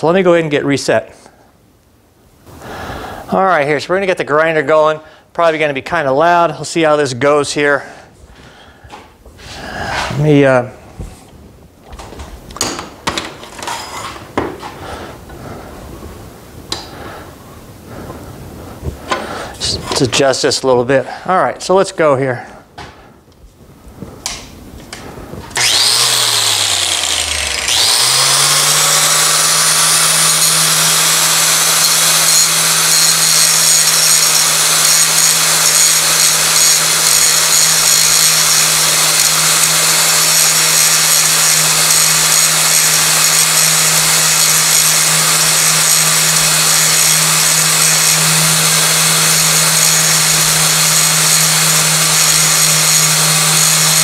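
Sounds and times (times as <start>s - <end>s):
angle grinder grinding steel: 25.5s - 54.0s.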